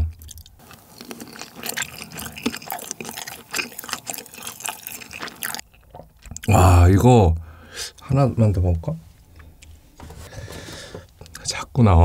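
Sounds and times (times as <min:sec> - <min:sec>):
wet chewing: 0:00.0 - 0:06.5.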